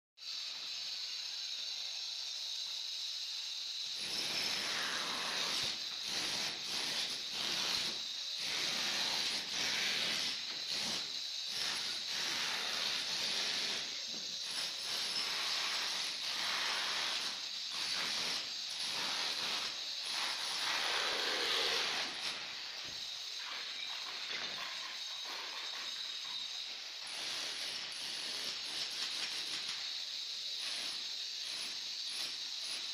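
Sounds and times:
steady high hiss: 0:00.2 - 0:04.0, 0:13.8 - 0:27.1.

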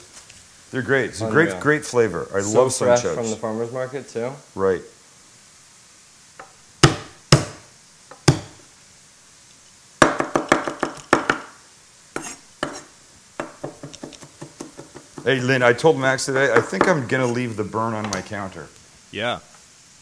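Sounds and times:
knife chopping on a board: 0:06.8 - 0:07.6, 0:08.2 - 0:08.6, 0:12.2 - 0:15.3.

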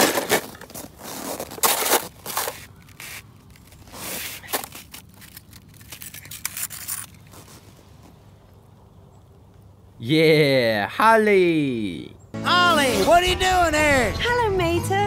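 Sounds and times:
hands scraping and rustling objects: 0:00.0 - 0:08.2.

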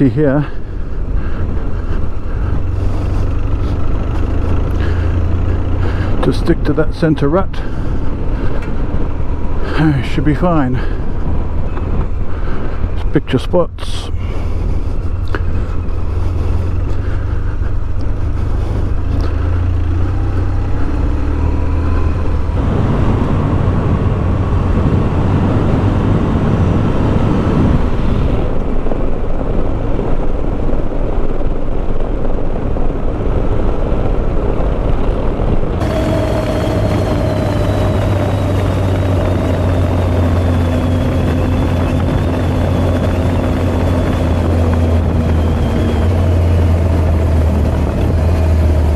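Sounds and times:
motorcycle engine running: 0:00.0 - 0:10.0, 0:14.3 - 0:30.0, 0:31.3 - 0:48.9
wind noise: 0:00.0 - 0:48.9
tyres on gravel: 0:35.8 - 0:48.9.

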